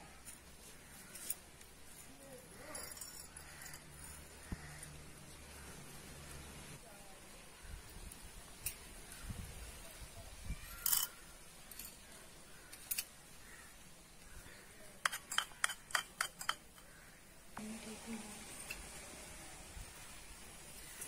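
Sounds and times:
metal utensils clinking on bowls: 2.6 - 4.4, 10.7 - 12.1, 15.0 - 16.9.

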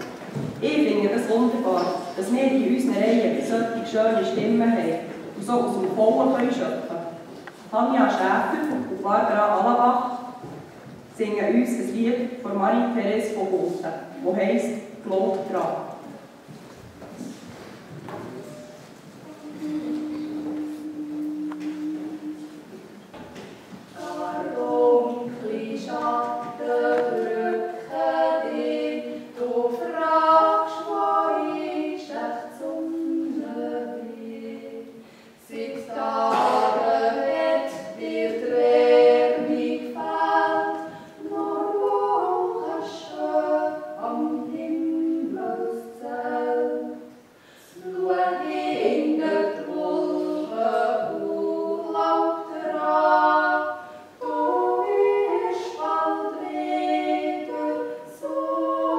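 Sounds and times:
two women singing in harmony: 0.0 - 10.5, 18.3 - 23.0, 23.9 - 58.9.

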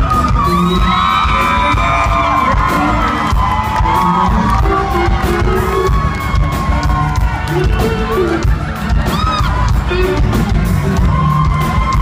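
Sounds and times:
audience cheering and whooping: 0.0 - 12.0
live country band playing: 0.0 - 12.0.

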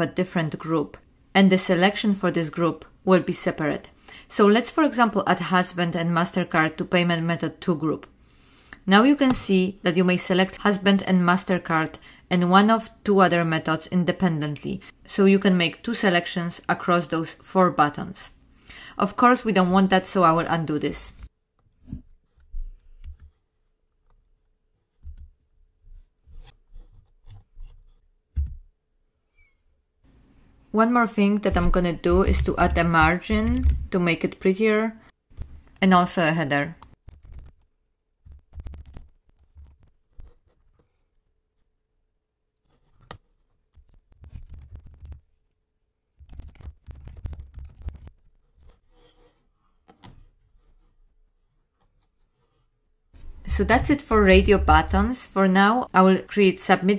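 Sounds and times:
keyboard and mouse clicks: 31.5 - 33.9, 38.3 - 39.9, 46.2 - 48.1.

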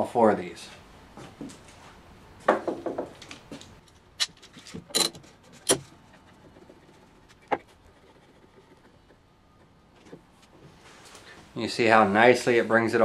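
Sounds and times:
metal clamps clicking and clanking: 3.9 - 5.9.

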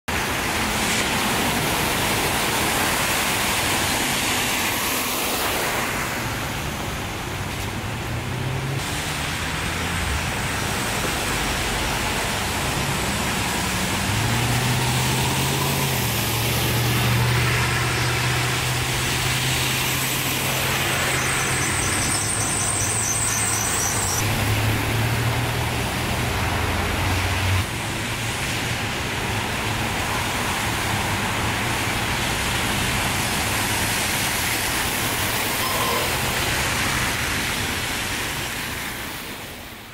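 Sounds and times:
tyres spraying floodwater: 0.1 - 39.9
high-pitched trill: 35.4 - 37.0.

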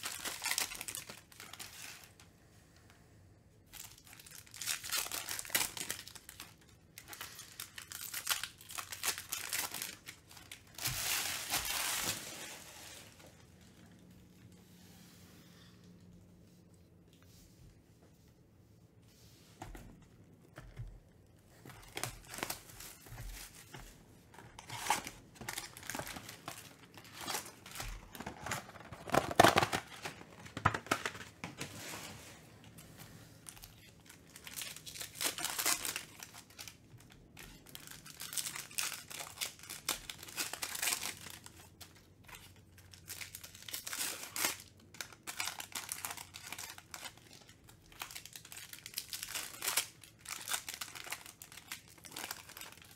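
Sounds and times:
foil wrappers crinkling and tearing: 0.0 - 2.2, 3.7 - 13.5, 21.6 - 32.0, 33.4 - 52.9.

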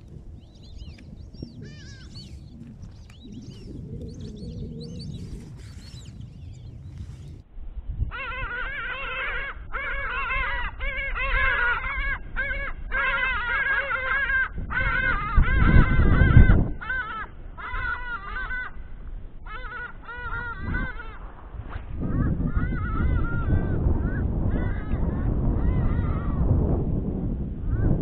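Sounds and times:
large birds calling: 0.0 - 7.4, 8.1 - 26.4
low rumble: 0.0 - 8.0.

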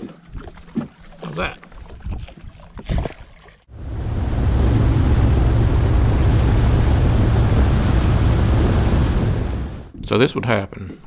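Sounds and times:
boat rushing across water: 3.7 - 9.9.

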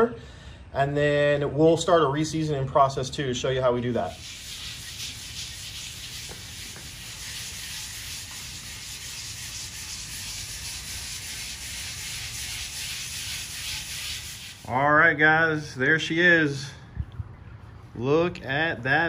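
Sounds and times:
scrubber pad scrubbing steel griddle: 3.9 - 14.8.

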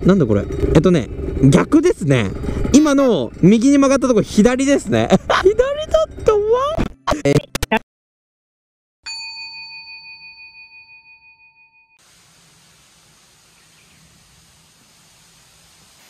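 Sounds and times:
bell chime ringing: 9.1 - 12.0
faint outdoor hiss: 12.0 - 16.0.

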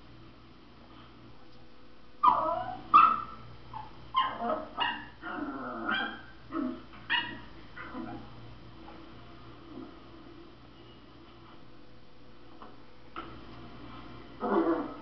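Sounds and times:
dog yipping and whining: 2.2 - 8.3, 14.4 - 15.0.

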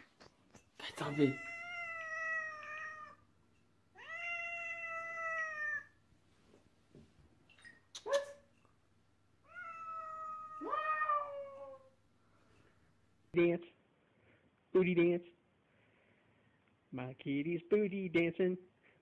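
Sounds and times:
cat meowing: 1.0 - 3.2, 3.9 - 6.0, 9.4 - 11.9.

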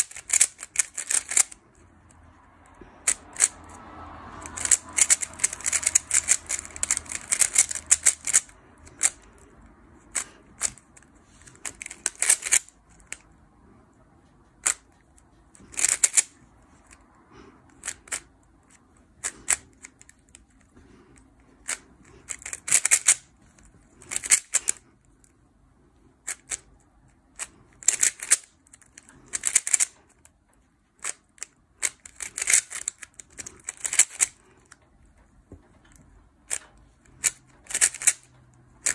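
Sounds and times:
speedcube plastic clicks: 0.0 - 1.9, 3.0 - 3.8, 4.4 - 13.2, 14.6 - 17.0, 17.7 - 20.7, 21.6 - 24.8, 26.2 - 30.2, 31.0 - 34.8, 35.9 - 38.9.

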